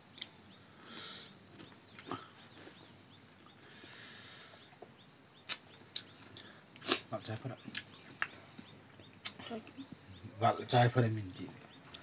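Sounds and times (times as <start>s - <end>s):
faint insect buzz: 0.0s - 12.0s.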